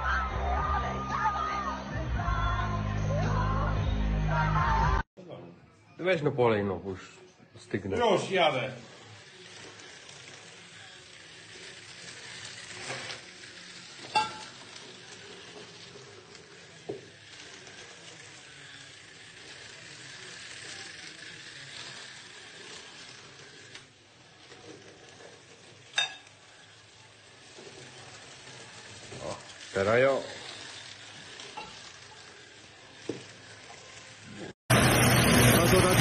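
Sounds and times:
tableware clinking: 0:14.0 - 0:14.6, 0:25.8 - 0:26.4, 0:31.6 - 0:31.9.

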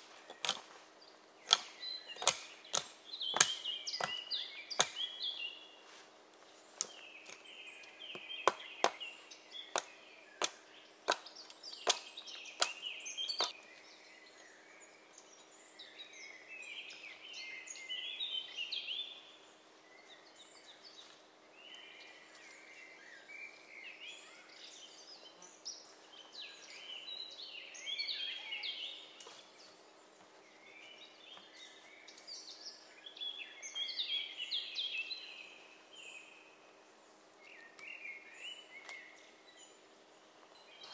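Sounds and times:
axe striking wood: 0:00.3 - 0:00.6, 0:01.5 - 0:05.1, 0:08.2 - 0:09.0, 0:09.8 - 0:12.8.

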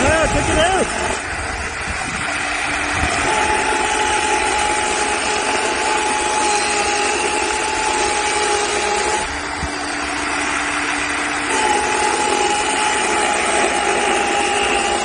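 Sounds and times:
electric chainsaw whine: 0:00.0 - 0:15.0
chain rasping in wood: 0:03.1 - 0:09.3.

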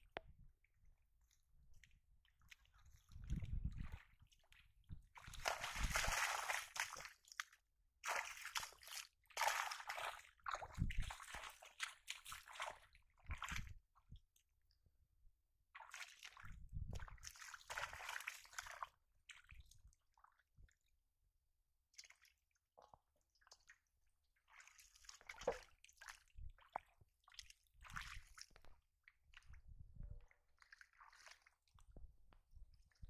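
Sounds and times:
shallow water splashing: 0:05.2 - 0:07.1.

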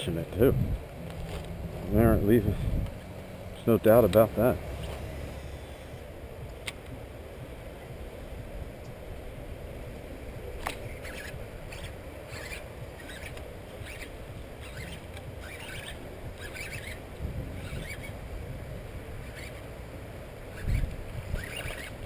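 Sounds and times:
wind on microphone: 0:00.0 - 0:22.0
fishing reel cranking: 0:10.6 - 0:18.2, 0:19.2 - 0:19.7, 0:20.5 - 0:22.0.

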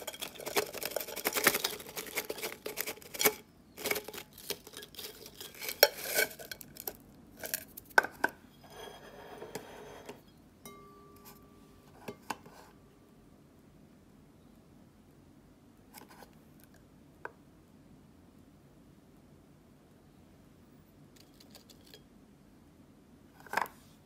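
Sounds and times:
crisps clattering onto ceramic plate: 0:00.0 - 0:08.3.

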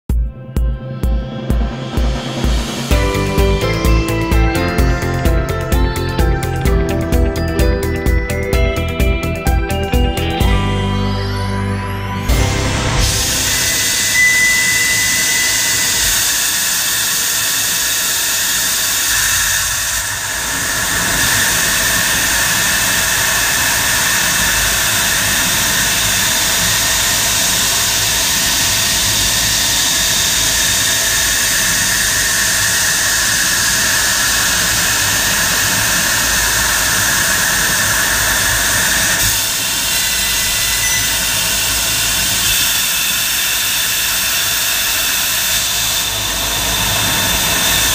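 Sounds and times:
loud hiss of laser assist gas: 0:13.0 - 0:47.9.

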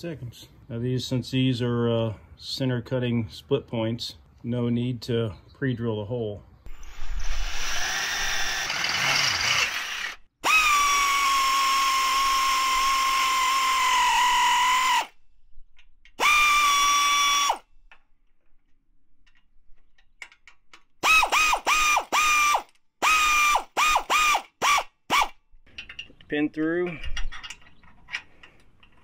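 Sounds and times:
drill cutting sheet metal: 0:06.7 - 0:15.1, 0:21.0 - 0:25.3
cordless ratchet whining: 0:06.7 - 0:15.2, 0:16.1 - 0:17.7, 0:21.0 - 0:25.4.

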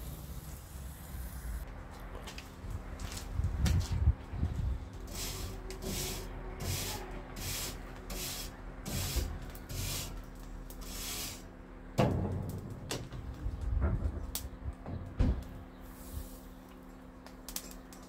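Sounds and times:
tool scraping metal grill grate: 0:05.0 - 0:12.7.

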